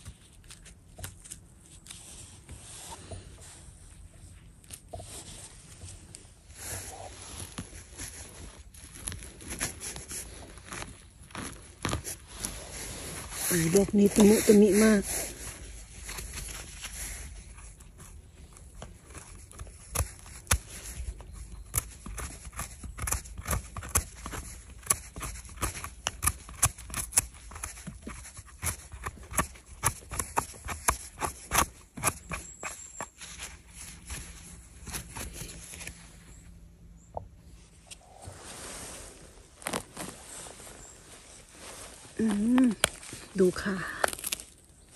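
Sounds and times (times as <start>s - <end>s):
knife trimming mushrooms: 13.5s - 18.2s, 18.8s - 35.9s, 43.9s - 44.6s.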